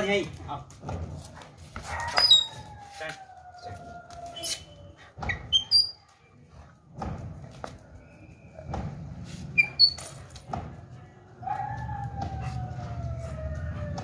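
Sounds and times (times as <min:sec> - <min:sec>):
dog whining: 0:01.9 - 0:06.0.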